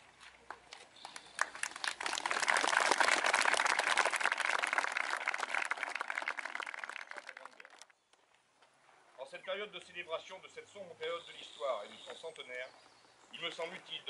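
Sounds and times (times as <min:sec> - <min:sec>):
crowd applauding: 0:01.0 - 0:07.9.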